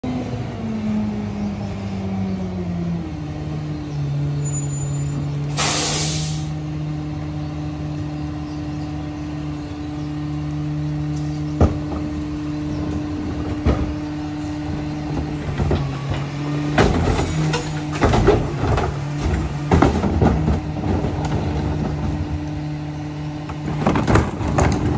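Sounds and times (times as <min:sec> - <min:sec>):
air brake hiss: 0:05.5 - 0:06.5
trash cart clanking and banging: 0:11.1 - 0:24.9.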